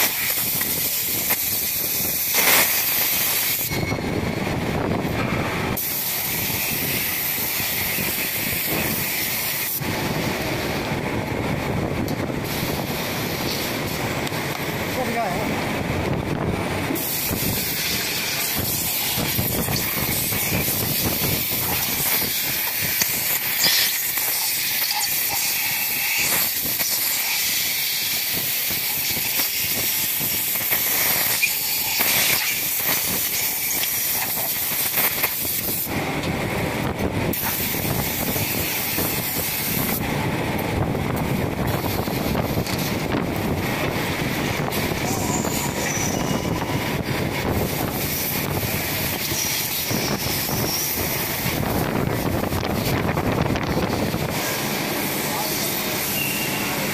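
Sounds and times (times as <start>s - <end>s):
machinery hiss: 5.7s - 10.2s, 17.0s - 36.0s.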